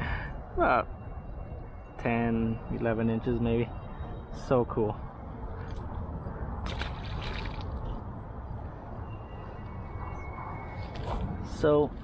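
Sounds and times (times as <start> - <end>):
water splashing and trickling: 6.6 - 8.0.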